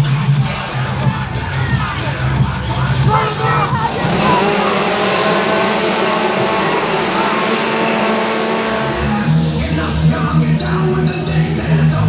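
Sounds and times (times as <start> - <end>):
music with heavy bass: 0.0 - 9.7
crowd noise: 0.0 - 10.0
chainsaw engines running: 3.1 - 9.4.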